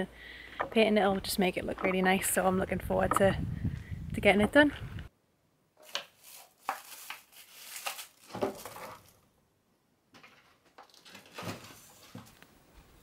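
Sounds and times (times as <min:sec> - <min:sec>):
paint tins and bucket clunking: 0:00.4 - 0:03.4.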